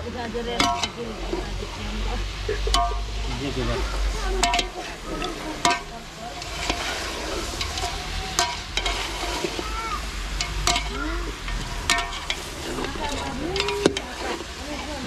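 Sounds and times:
meat sizzling: 0.0 - 15.0
metal ladle scraping a pot: 0.6 - 1.8, 2.6 - 15.0.

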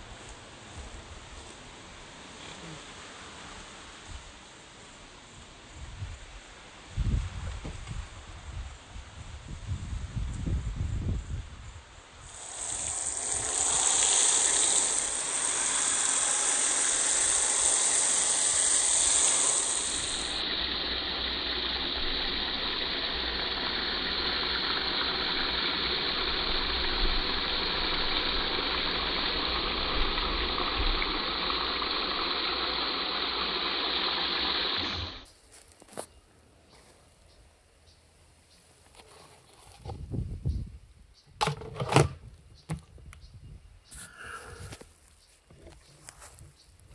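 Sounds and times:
hose water splashing into bucket: 12.3 - 35.3.

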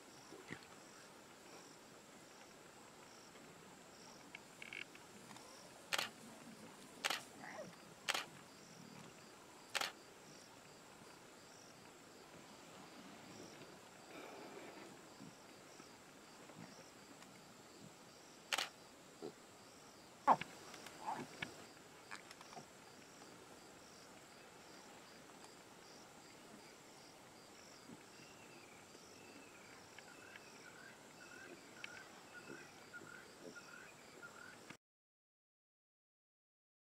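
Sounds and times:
sharp clicks: 4.6 - 6.2, 7.0 - 7.3, 8.1 - 8.3, 9.7 - 10.0, 18.5 - 18.7.

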